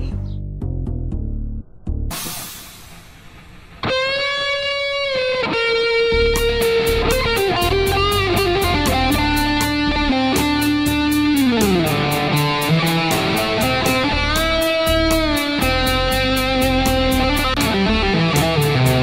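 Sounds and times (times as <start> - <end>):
electric guitar long notes: 3.8 - 19.0
high ticking beat: 6.1 - 19.0.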